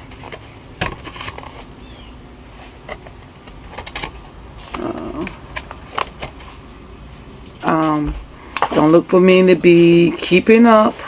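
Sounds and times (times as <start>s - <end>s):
clicks and rattles of handled case: 2.9s - 6.6s.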